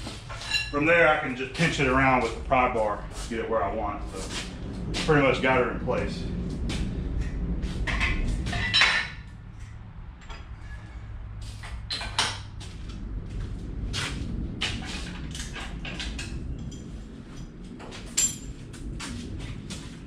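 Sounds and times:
metal clinks and knocks: 18.1s - 18.6s.

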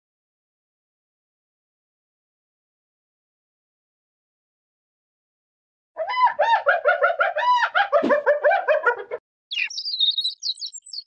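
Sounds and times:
hyena giggling: 6.0s - 9.2s
nestling bird peeping: 9.5s - 11.0s.

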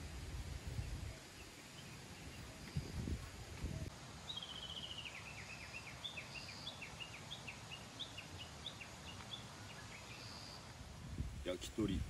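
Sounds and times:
songbird trilling and chirping: 3.8s - 10.7s.

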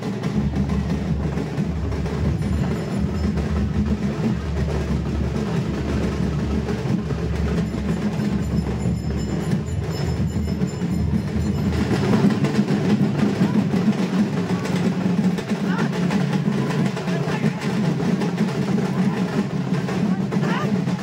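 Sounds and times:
drum band playing: 0.0s - 21.0s.

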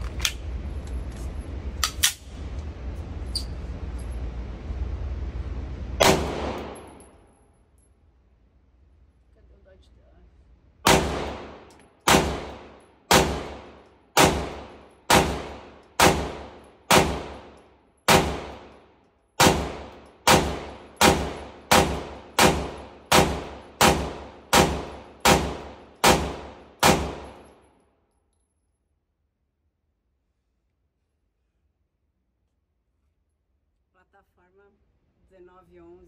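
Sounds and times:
pistol shots with echo: 6.0s - 7.0s, 10.8s - 18.7s, 19.4s - 27.4s.

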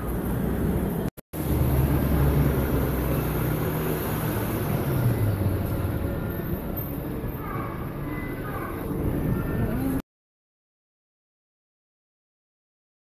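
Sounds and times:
vehicle engine rumbling: 0.0s - 10.0s.

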